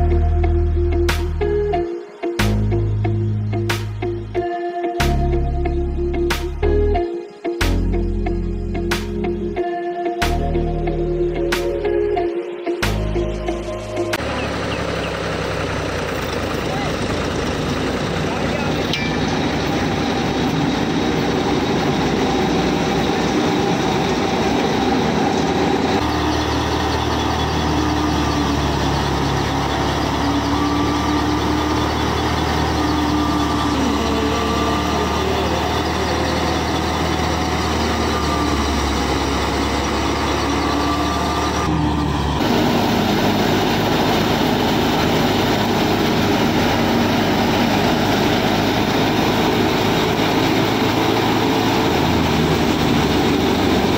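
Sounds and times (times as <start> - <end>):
model thresher humming and whining: 14.2 - 53.9.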